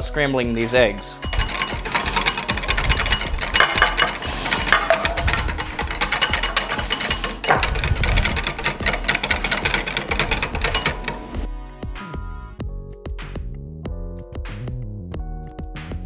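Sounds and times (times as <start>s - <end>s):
background music: 0.0s - 16.0s
wire whisk clinking in glass bowl: 0.2s - 11.3s.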